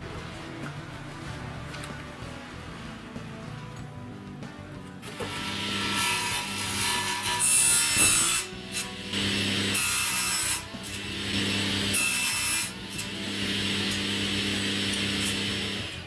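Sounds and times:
table saw cutting a board: 0:05.0 - 0:16.0.

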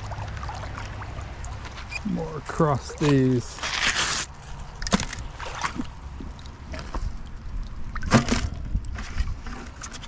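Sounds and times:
object put into plastic bucket: 0:08.1 - 0:09.8.

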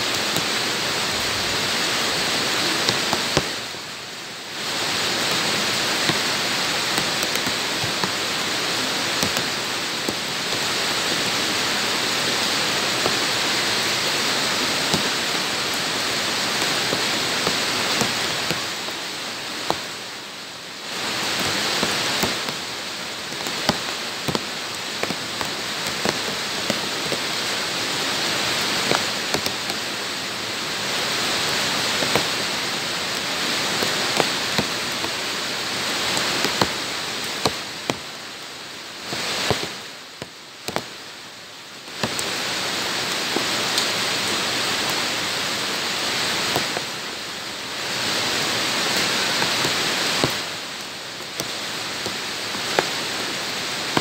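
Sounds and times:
heavy rain on hard ground: 0:00.0 - 0:54.0.

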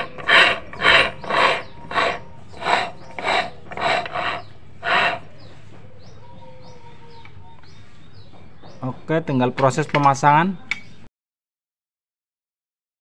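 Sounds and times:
gearbox gears rasping: 0:00.0 - 0:05.3.

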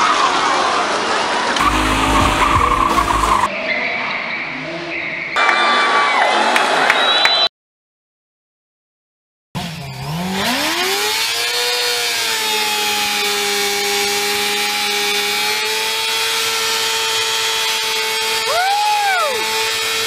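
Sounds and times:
motorcycle engine revving: 0:01.6 - 0:03.5, 0:09.6 - 0:18.5
tyre spinning on pavement: 0:01.6 - 0:03.5.

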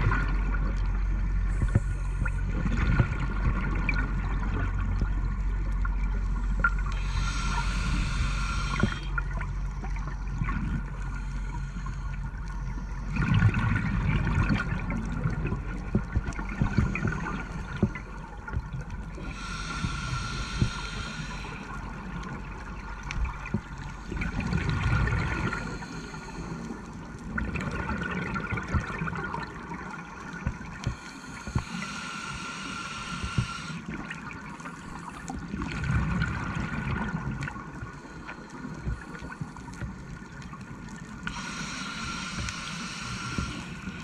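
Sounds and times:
exhaled air bubbling: 0:00.0 - 0:44.0
faint steady whine: 0:00.0 - 0:44.0
regulator inhalation hiss: 0:06.9 - 0:09.2, 0:19.2 - 0:22.1, 0:25.5 - 0:26.7, 0:30.9 - 0:33.9, 0:41.2 - 0:44.0.

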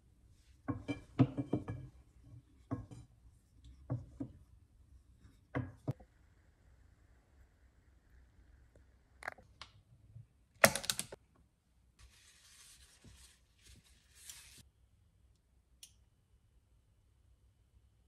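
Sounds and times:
kitchenware clattering: 0:00.7 - 0:02.0
paper towel wiping frying pan: 0:12.0 - 0:14.6.

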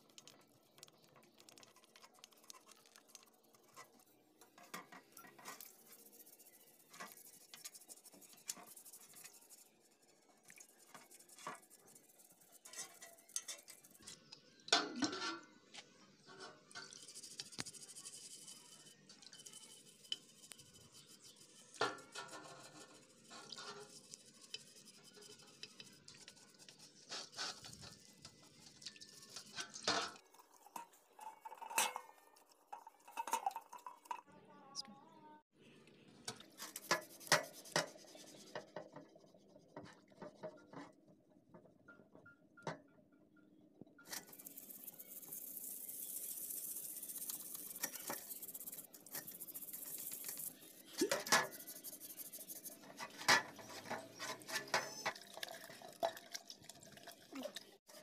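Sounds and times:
brush scrubbing plastic: 0:00.1 - 0:14.1, 0:16.7 - 0:34.2, 0:36.5 - 0:40.8, 0:44.1 - 0:55.1.

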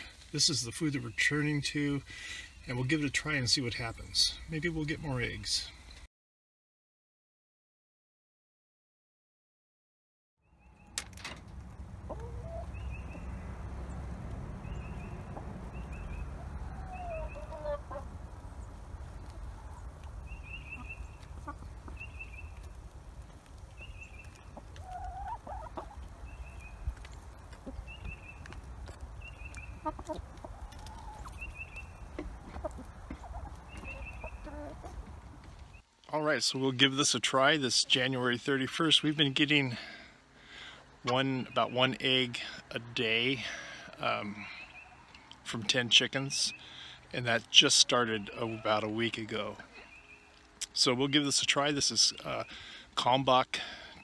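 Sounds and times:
steady low rumble: 0:11.4 - 0:24.6
hens clucking: 0:11.6 - 0:35.6, 0:47.3 - 0:52.5.

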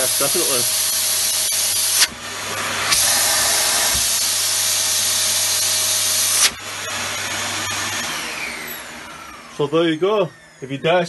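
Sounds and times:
vacuum cleaner motor hum: 0:00.0 - 0:11.0
air rushing through hose: 0:02.5 - 0:04.4.

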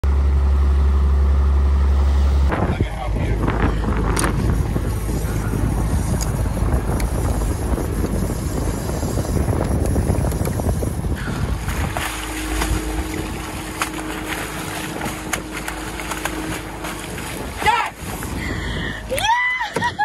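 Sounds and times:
steady low hum: 0:00.0 - 0:20.0
water rushing along hull: 0:00.6 - 0:20.0
wind buffeting microphone: 0:02.5 - 0:20.0
fish splashing at surface: 0:11.4 - 0:18.1.

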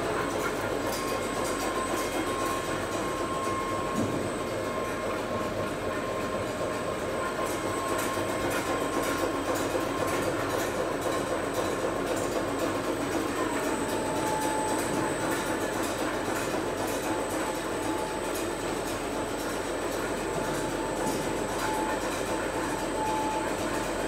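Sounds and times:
thin machine whine: 0:00.0 - 0:24.0
factory machinery din: 0:00.1 - 0:09.2.

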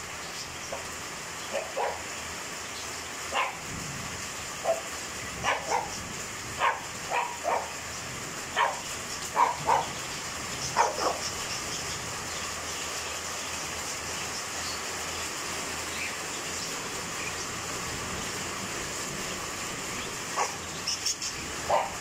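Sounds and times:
heavy rain falling: 0:00.0 - 0:22.0
dog barking: 0:01.5 - 0:02.1, 0:03.3 - 0:03.6, 0:04.6 - 0:06.0, 0:06.6 - 0:07.8, 0:08.6 - 0:10.0, 0:10.7 - 0:11.3, 0:20.4 - 0:20.6, 0:21.7 - 0:22.0.

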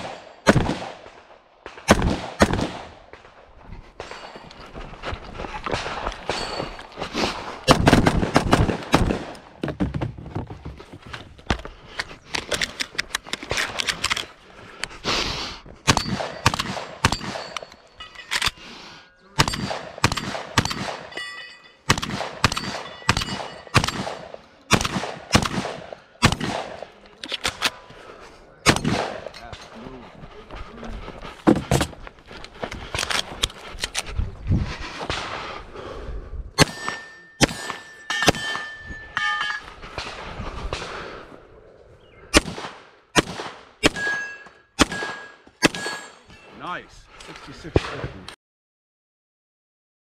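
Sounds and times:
rifle fired rapidly: 0:00.0 - 0:03.3, 0:07.6 - 0:09.6, 0:15.9 - 0:17.6, 0:19.4 - 0:21.1, 0:21.9 - 0:27.8, 0:28.6 - 0:29.3, 0:36.6 - 0:38.7, 0:42.3 - 0:44.2, 0:44.8 - 0:46.1
shotgun shots: 0:00.0 - 0:03.4, 0:07.6 - 0:09.5, 0:15.9 - 0:17.6, 0:19.4 - 0:21.2, 0:21.9 - 0:27.7, 0:28.6 - 0:29.4, 0:36.6 - 0:38.7, 0:42.3 - 0:44.2, 0:44.8 - 0:46.2.

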